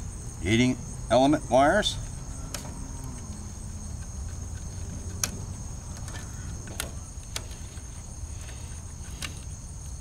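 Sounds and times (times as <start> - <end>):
insect trill: 0.0 - 10.0
wire connectors clicking: 2.5 - 10.0.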